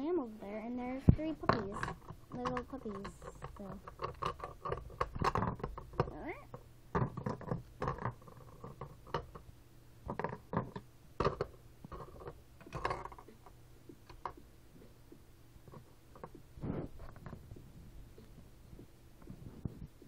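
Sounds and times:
plastic figurines clicking and tapping: 1.1s - 9.5s, 10.1s - 14.5s.

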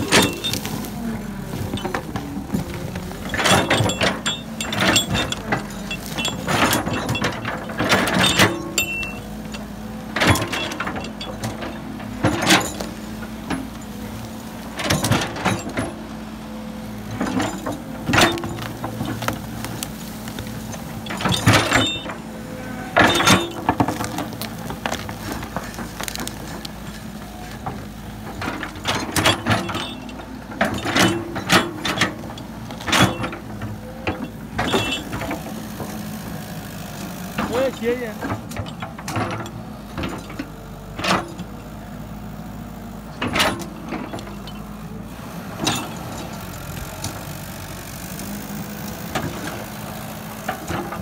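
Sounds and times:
bucket crunching and scraping soil: 0.0s - 9.1s, 17.2s - 29.7s
excavator engine running: 0.0s - 51.0s.

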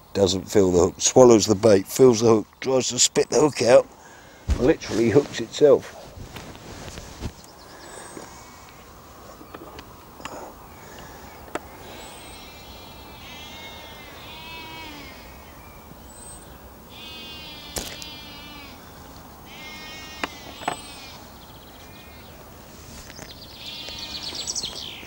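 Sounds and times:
animal calling: 7.8s - 15.9s, 16.9s - 22.4s, 23.5s - 25.0s.

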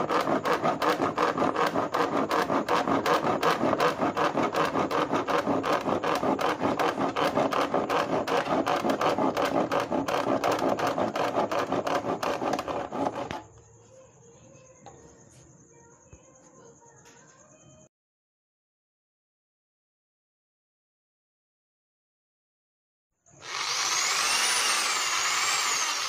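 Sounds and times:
hand saw cutting plastic: 0.0s - 13.5s, 23.4s - 26.0s.

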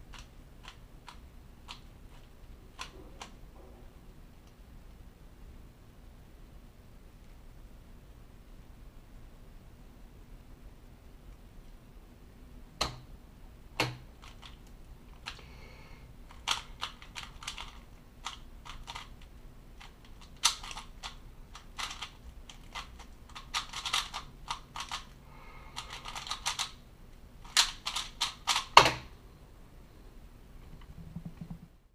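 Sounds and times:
speed cube clicking: 0.1s - 2.2s, 13.8s - 14.6s, 16.3s - 25.1s, 25.8s - 26.8s, 27.5s - 28.8s.

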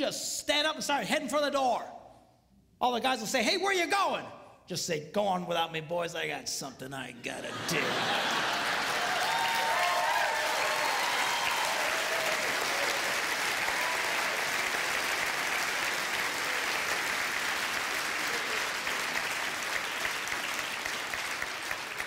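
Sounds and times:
audience applauding: 7.6s - 22.0s.

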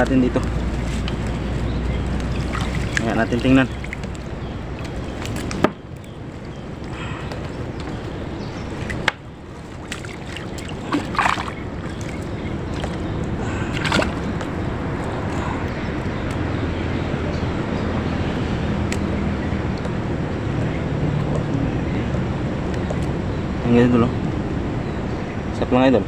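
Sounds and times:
water sloshing and splashing: 0.0s - 15.3s
low steady hum: 0.0s - 25.4s.

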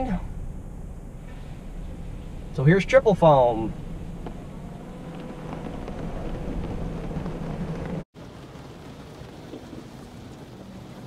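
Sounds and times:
low steady hum: 0.0s - 8.1s.

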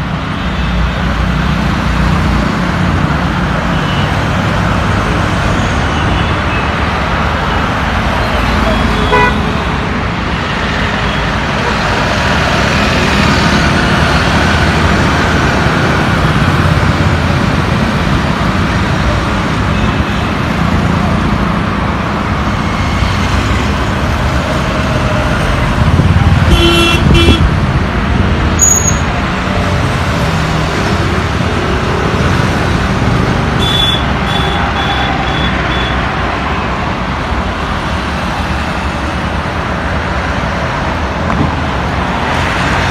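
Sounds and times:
road traffic passing: 0.0s - 42.9s
vehicle horn toot: 8.8s - 9.4s, 26.5s - 27.5s, 33.6s - 36.0s.

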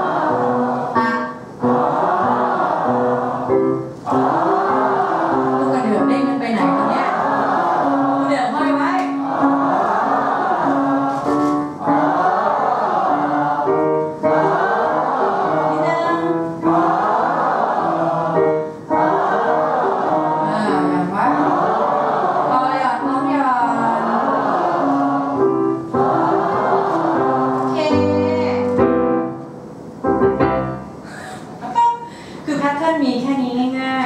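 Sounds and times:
group of voices singing: 0.0s - 28.2s
piano scale notes: 0.0s - 33.8s
singers breathing: 31.0s - 32.5s.

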